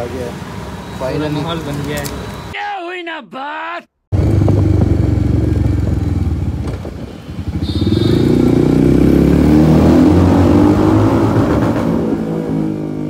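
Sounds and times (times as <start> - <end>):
motorcycle engine running: 4.1 - 9.6.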